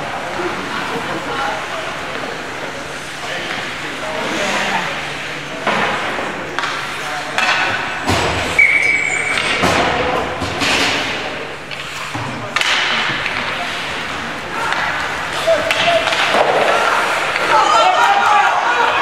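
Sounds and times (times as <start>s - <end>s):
indistinct echoing voices: 0.0s - 19.0s
hockey sticks and pucks knocking: 5.6s - 8.6s, 9.3s - 19.0s
short whistle blast: 8.6s - 9.4s.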